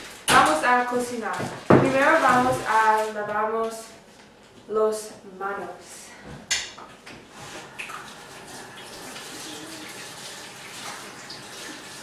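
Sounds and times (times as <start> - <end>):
hands washing under water: 7.5 - 12.0
tap water running: 7.5 - 12.0.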